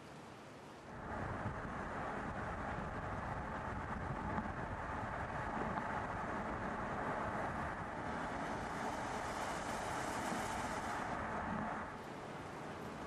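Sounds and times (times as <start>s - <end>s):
car engine and tyre noise: 0.9s - 13.0s
hiss: 8.0s - 11.2s.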